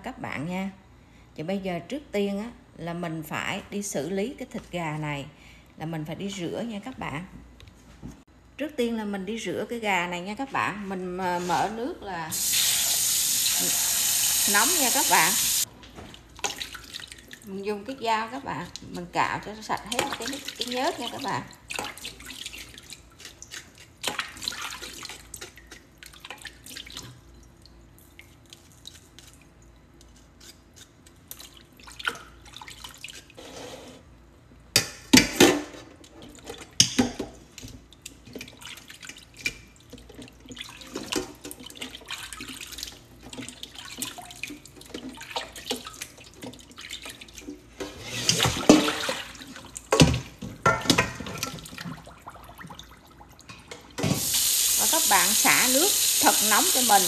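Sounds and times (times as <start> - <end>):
water splashing in a bowl: 12.3 - 17.6, 19.6 - 29.6, 31.2 - 33.4, 36.1 - 57.0.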